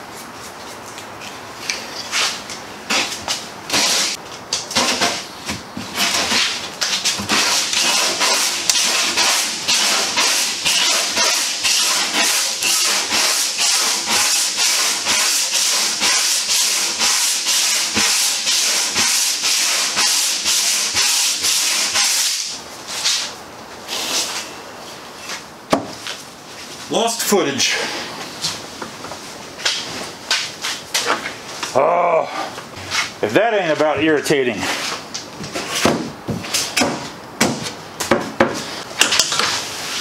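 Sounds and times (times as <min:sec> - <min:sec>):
sanding block scraping: 0:05.9 - 0:23.3.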